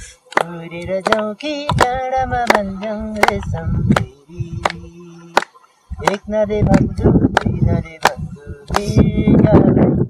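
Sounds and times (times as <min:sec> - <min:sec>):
person singing: 0:00.0 - 0:10.0.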